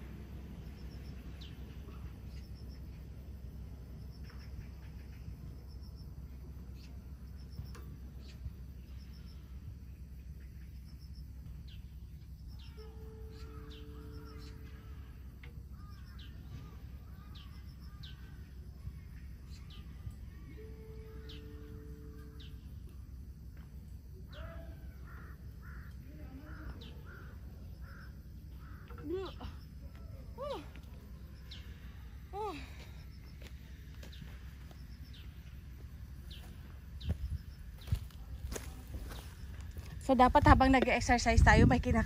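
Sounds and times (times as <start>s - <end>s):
low background rumble: 0.0s - 42.0s
birds cawing: 12.6s - 18.5s, 24.3s - 30.7s.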